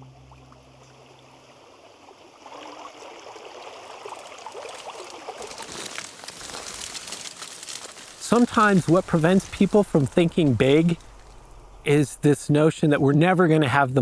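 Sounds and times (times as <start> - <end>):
creek trickling over rocks: 0.0 - 12.0
twigs crackling underfoot: 4.2 - 12.1.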